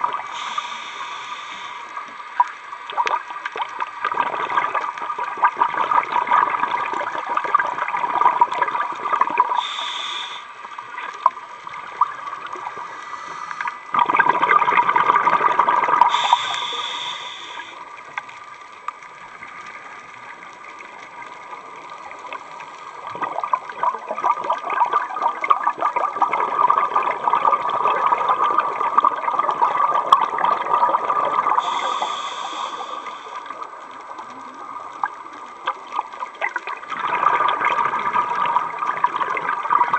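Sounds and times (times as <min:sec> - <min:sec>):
diver breathing through regulator: 0:00.3 - 0:02.0, 0:09.5 - 0:10.6, 0:12.7 - 0:13.9, 0:16.1 - 0:17.8, 0:31.6 - 0:33.7
exhaled bubbles rushing: 0:02.4 - 0:09.8, 0:13.6 - 0:16.7, 0:21.2 - 0:39.9
brief higher hiss: 0:09.6 - 0:10.5, 0:16.1 - 0:17.8.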